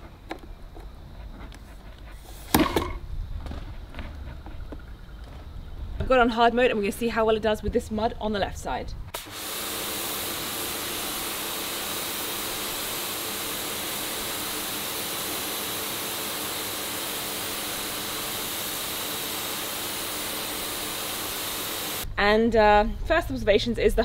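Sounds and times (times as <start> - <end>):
pressure washer spraying: 9.2 - 22.0.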